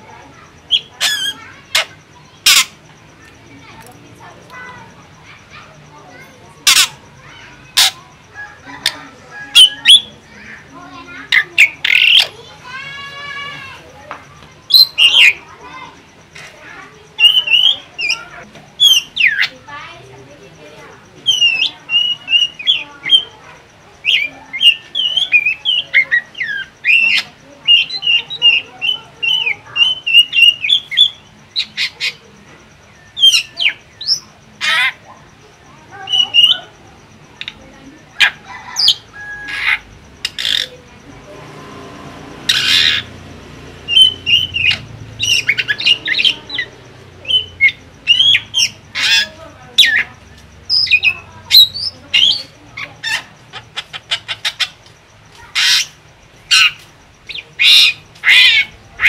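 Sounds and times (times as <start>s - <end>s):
bird raspy squawk: 0.4s - 2.9s, 6.5s - 13.8s, 33.0s - 35.2s, 37.4s - 40.8s, 42.4s - 43.2s, 43.9s - 59.0s
bird clicking calls: 0.4s - 12.8s, 20.8s - 41.1s, 42.4s - 59.0s
bird whistled chirps: 21.3s - 23.4s, 43.9s - 50.0s.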